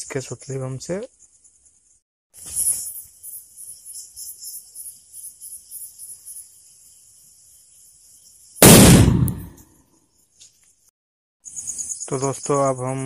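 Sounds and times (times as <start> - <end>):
crickets chirping: 0.2 - 13.0
firecracker bang: 8.6 - 9.6.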